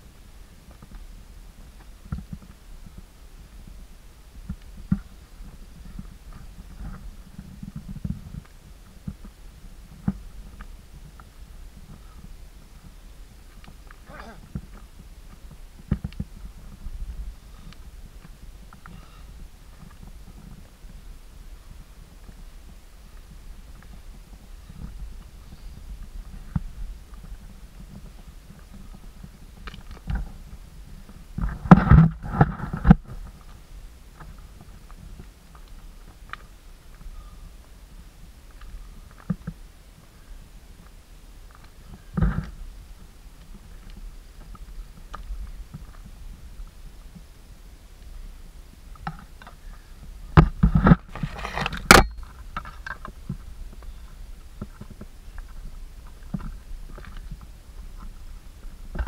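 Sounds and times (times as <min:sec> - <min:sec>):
footsteps on loose stones: 0:49.0 - 0:59.0
footsteps crunching on rubble: 0:50.4 - 0:53.9
stones knocking and scraping: 0:50.4 - 0:53.9.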